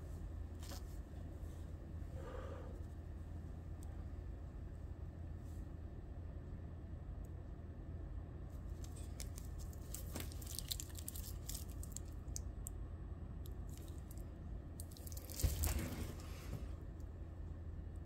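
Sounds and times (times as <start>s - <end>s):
steady low hum: 0.0s - 18.0s
watch bracelet clicks and rustles: 8.8s - 12.2s.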